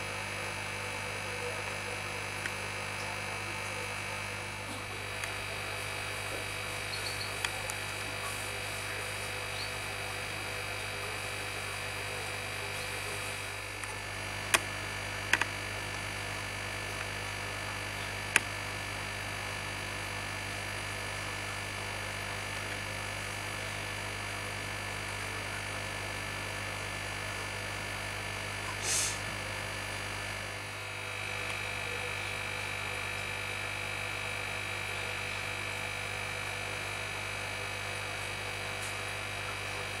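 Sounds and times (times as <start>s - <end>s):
aquarium equipment humming: 0.0s - 40.0s
short hiss: 28.8s - 29.2s.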